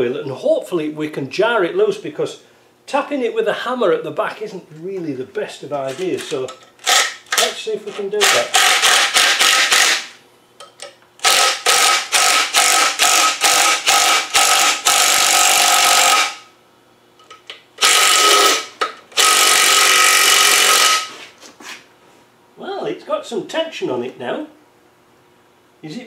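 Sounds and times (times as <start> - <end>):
impact wrench hammering: 8.2 - 16.4, 17.2 - 21.1.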